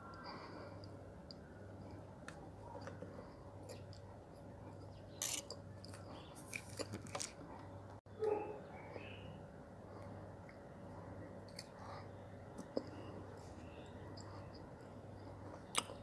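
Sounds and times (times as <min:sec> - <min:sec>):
steady low hum: 0:00.0 - 0:16.0
wet chewing: 0:00.1 - 0:07.8, 0:11.4 - 0:16.0.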